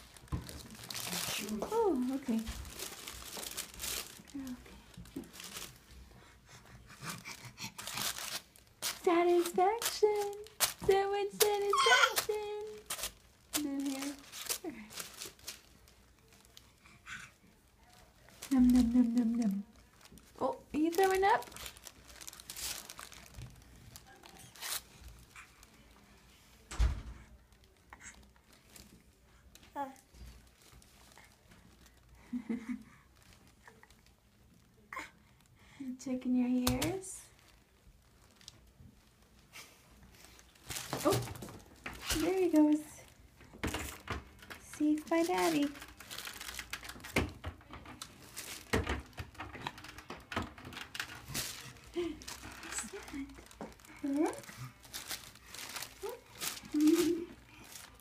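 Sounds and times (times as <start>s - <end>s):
handling knocks and rustles: 0.0s - 6.0s, 40.0s - 58.0s
paper rustling and crinkling: 0.0s - 34.9s, 36.5s - 58.0s.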